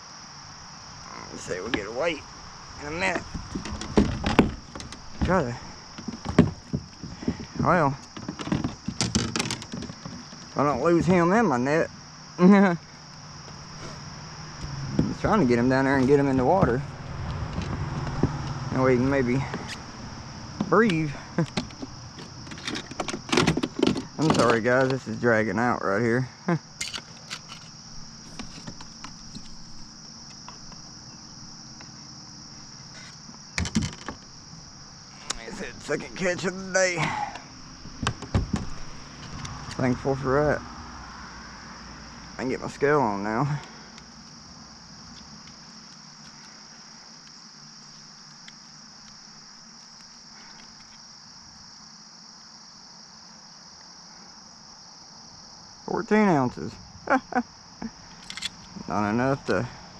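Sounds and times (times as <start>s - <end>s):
high-pitched insect chorus: 0.0s - 59.9s
sharp knocks and rattles: 3.2s - 11.3s, 14.6s - 25.2s, 26.8s - 30.9s, 32.9s - 34.4s, 35.4s - 39.8s
faint small ticks: 45.1s - 51.1s.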